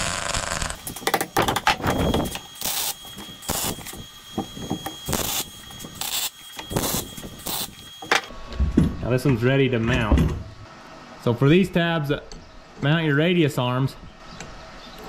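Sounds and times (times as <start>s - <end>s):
welding crackling bursts: 0.0s - 8.2s
faint high whine: 0.0s - 9.1s.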